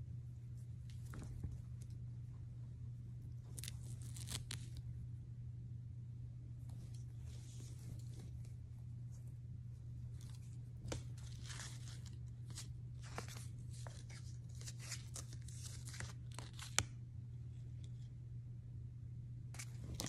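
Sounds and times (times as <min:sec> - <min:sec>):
steady low hum: 0:00.0 - 0:20.0
fabric and paper tag rustling: 0:03.2 - 0:04.8, 0:06.6 - 0:09.4, 0:10.1 - 0:16.8.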